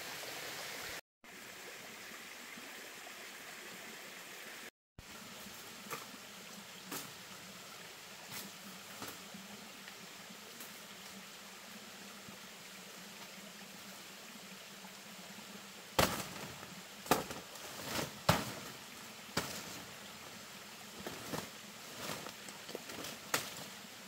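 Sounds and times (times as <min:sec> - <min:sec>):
faint forest hiss: 0:00.0 - 0:24.0
leaves rustling: 0:05.0 - 0:12.2, 0:15.4 - 0:24.0
machete chopping plant stems: 0:16.0 - 0:18.7, 0:19.4 - 0:19.8.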